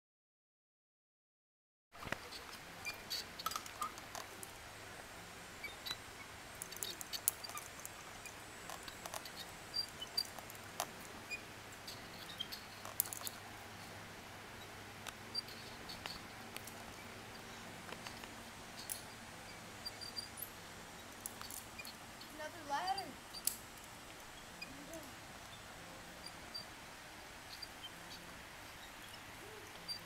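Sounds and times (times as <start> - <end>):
faint clicks and ticks: 6.6 - 13.4.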